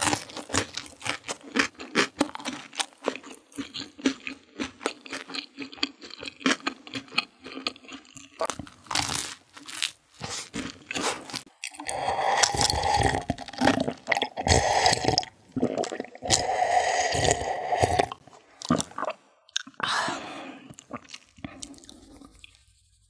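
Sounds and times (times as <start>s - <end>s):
soft mouth sounds: 10.2s - 23.0s
gulping and swallowing: 11.7s - 19.9s, 20.6s - 22.6s.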